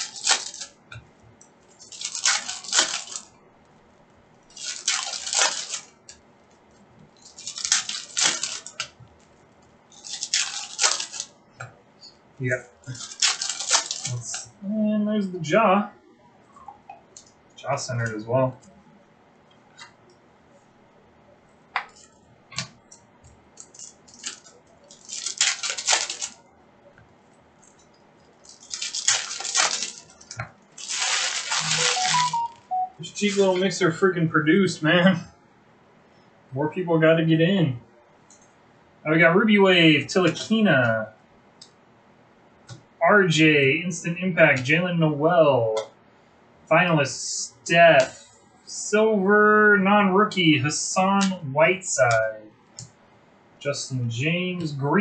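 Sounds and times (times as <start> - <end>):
foil wrappers crinkling and tearing: 0.0 - 0.8, 1.7 - 3.3, 4.5 - 6.2, 7.2 - 9.3, 9.9 - 11.4, 12.8 - 14.5, 23.6 - 26.4, 27.7 - 33.7.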